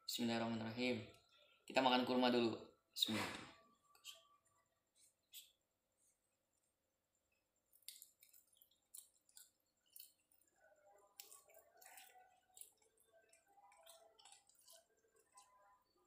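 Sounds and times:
mouth chewing wetly: 7.3 - 15.9.

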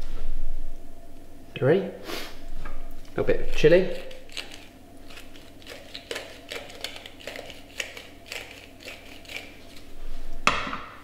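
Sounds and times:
hand spice grinder crunching: 3.4 - 10.0.

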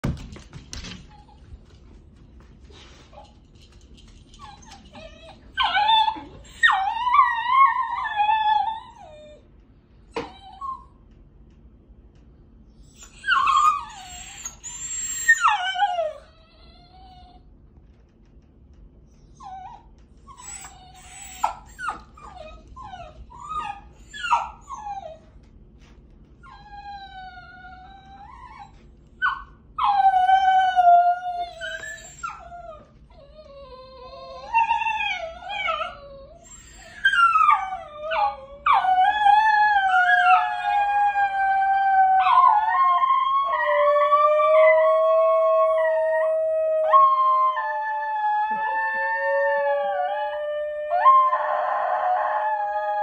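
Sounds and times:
dog yips and whines: 4.4 - 9.4, 12.8 - 17.4, 19.3 - 25.3, 26.5 - 41.5
dogs yodelling and howling: 4.8 - 9.4, 29.2 - 53.0.

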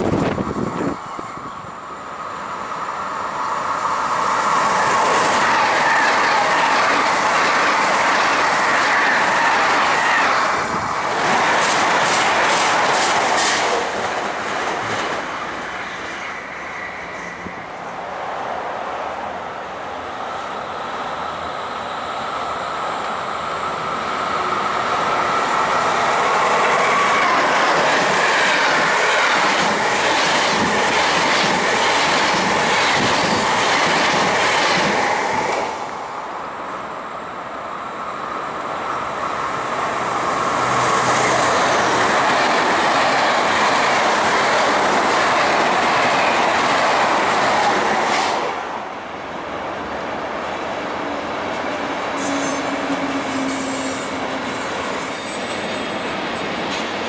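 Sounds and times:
train rolling with high hiss: 0.0 - 57.0
train wheels clattering on rails: 4.6 - 16.3, 25.3 - 36.0, 52.2 - 57.0.

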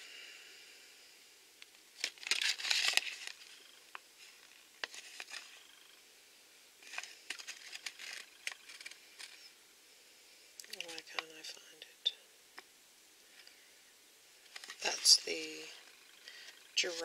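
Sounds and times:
paper leaflet rustling: 2.0 - 5.8, 6.8 - 9.5, 14.5 - 15.6.

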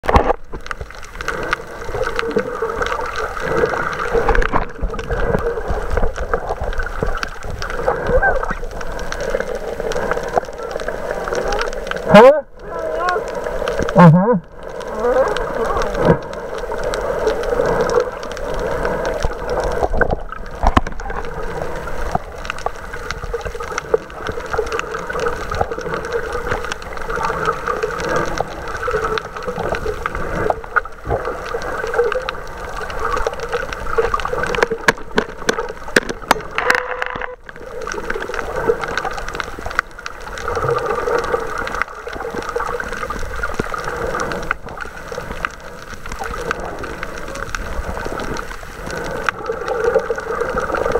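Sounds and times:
muffled underwater gurgling: 0.0 - 50.9
underwater clicks: 0.0 - 50.9.

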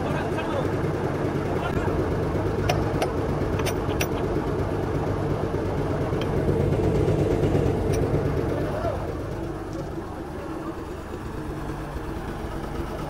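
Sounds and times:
diesel engine idling: 0.0 - 13.0
metal clicks on steel: 2.6 - 4.2.

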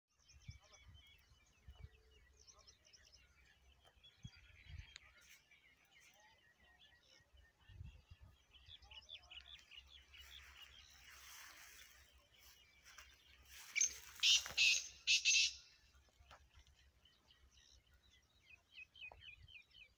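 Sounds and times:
small birds chirping: 0.1 - 19.9
harsh bird call: 13.8 - 15.7.

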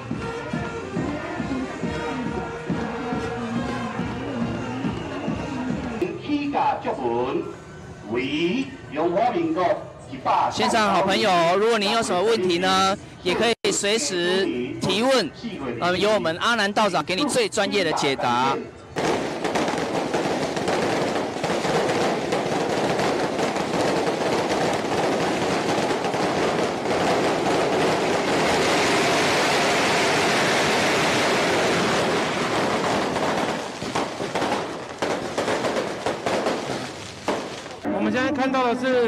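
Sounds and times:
firecrackers crackling: 18.9 - 37.9.

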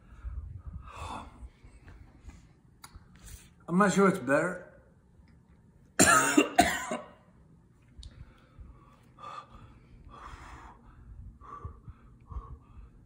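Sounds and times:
man breathing hard: 0.0 - 2.4, 8.1 - 13.0
loud cough: 6.0 - 7.2.

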